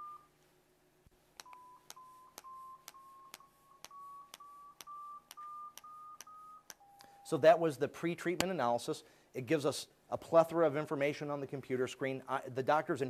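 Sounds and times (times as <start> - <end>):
short beeps rising in pitch: 0.0 - 0.3, 1.4 - 7.3.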